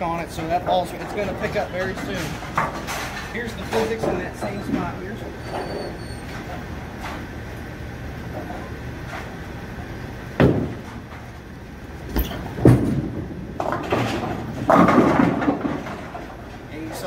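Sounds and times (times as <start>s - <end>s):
low steady rumble: 0.0s - 17.0s
loud sharp knock: 10.4s - 10.8s
bowling pins crashing: 10.4s - 11.0s, 12.1s - 17.0s
bowling ball rolling on wooden lane: 12.1s - 16.7s.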